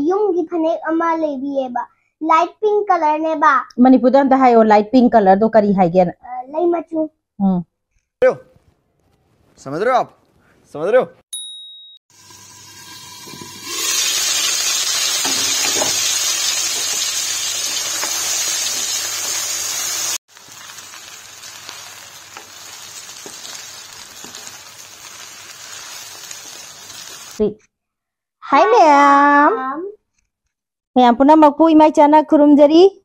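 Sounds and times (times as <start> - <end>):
noodles sizzling in a wok: 12.1 - 27.4.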